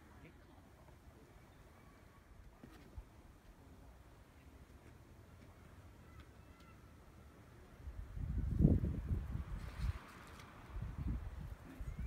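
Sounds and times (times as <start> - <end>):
wind buffeting microphone: 7.9 - 12.0.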